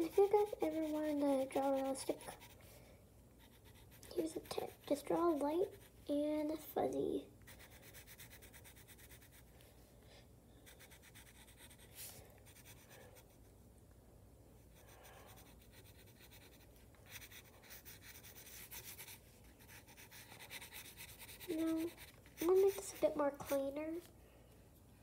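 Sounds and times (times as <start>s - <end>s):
pencil scratching on paper: 0.0s - 2.7s, 3.4s - 6.0s, 7.5s - 9.5s, 10.6s - 13.4s, 14.6s - 24.1s.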